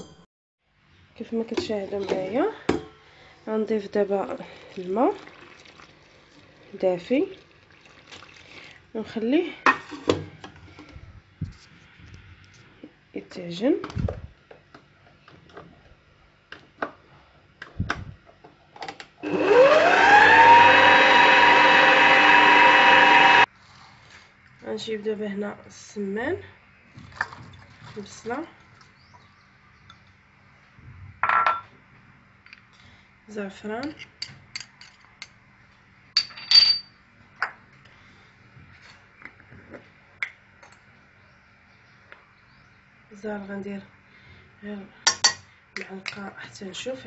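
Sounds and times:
stand mixer motor whining: 0:19.2 - 0:23.5.

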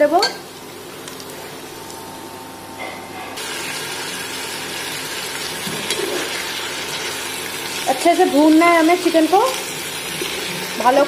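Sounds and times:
onions sizzling in oil: 0:00.0 - 0:02.2, 0:03.4 - 0:11.0
chicken frying in a pan: 0:03.4 - 0:11.0.

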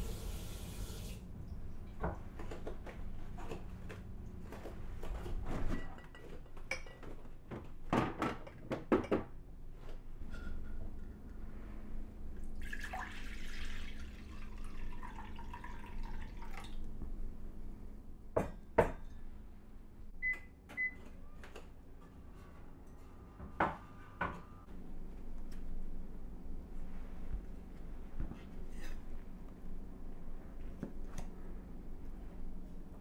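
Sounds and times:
liquid pouring into saucepan: 0:12.6 - 0:16.8.

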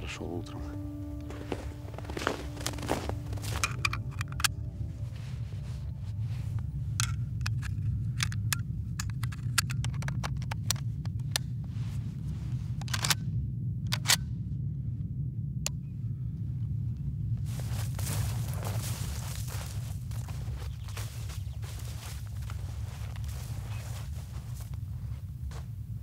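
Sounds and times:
low rumble: 0:00.0 - 0:26.0
footsteps crunching in snow: 0:00.6 - 0:07.0, 0:17.4 - 0:26.0.

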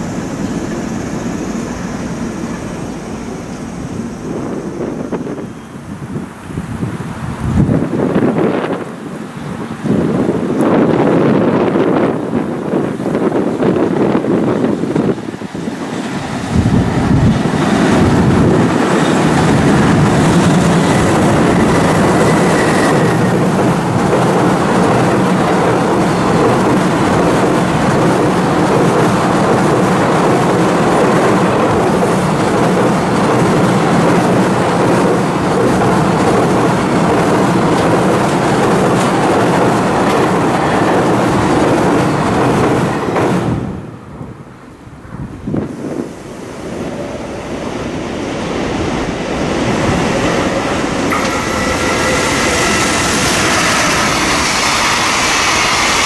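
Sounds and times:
freight train passing: 0:00.0 - 0:56.0.

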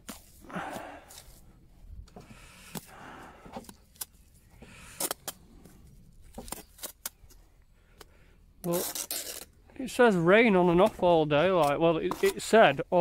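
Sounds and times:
trowel scraping mortar: 0:08.6 - 0:13.0.

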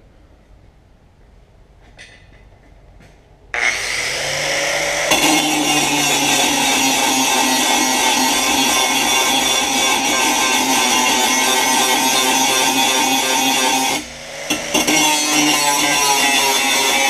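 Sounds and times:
angle grinder grinding steel: 0:03.6 - 0:17.0.

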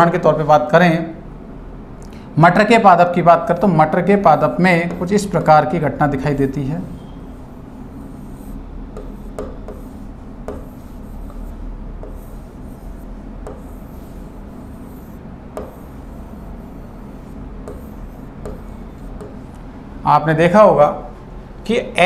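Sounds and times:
steady low hum: 0:00.2 - 0:21.7
marker pen scratching on board: 0:04.0 - 0:19.6
marker tip ticking: 0:08.1 - 0:16.4, 0:17.1 - 0:19.5.

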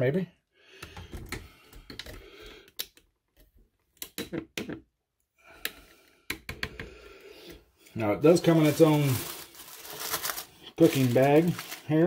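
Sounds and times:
soft rustling: 0:08.2 - 0:12.0.

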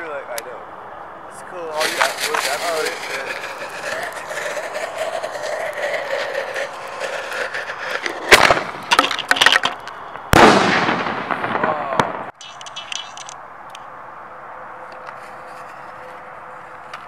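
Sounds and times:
firework crackling: 0:01.6 - 0:09.4
firework bangs: 0:01.7 - 0:07.1, 0:07.7 - 0:09.3, 0:10.1 - 0:13.0.

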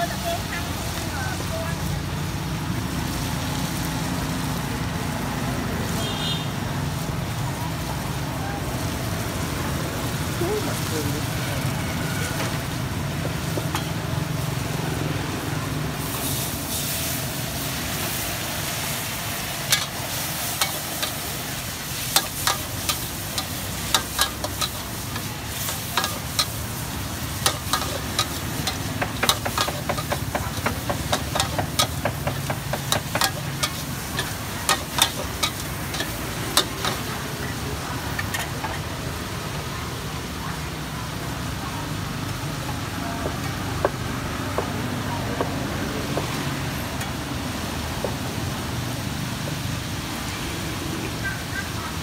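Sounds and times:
food sizzling: 0:00.0 - 0:52.0
metal ladle clanking on wok: 0:22.1 - 0:26.6, 0:27.3 - 0:37.1.

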